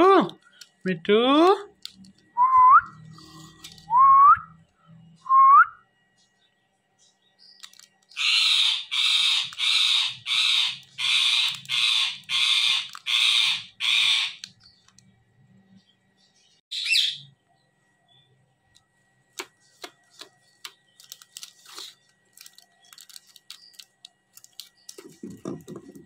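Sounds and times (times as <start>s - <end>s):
parakeet screeching: 8.2s - 14.5s, 16.7s - 17.2s.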